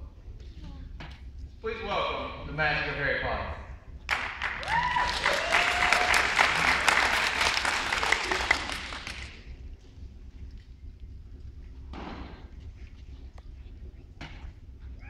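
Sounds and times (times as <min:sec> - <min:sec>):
audience applause: 0:04.1 - 0:09.5.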